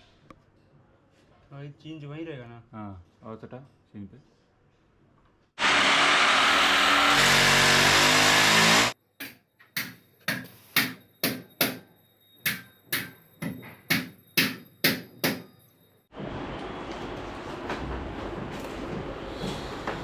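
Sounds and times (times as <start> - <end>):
electric drill boring into wall: 5.6 - 9.0
hammer striking metal plate: 9.2 - 15.6.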